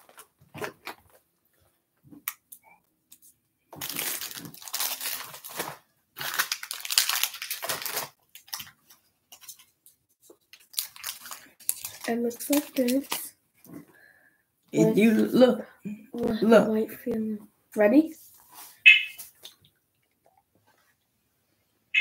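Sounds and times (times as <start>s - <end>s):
candy wrappers crinkling: 2.1s - 13.8s.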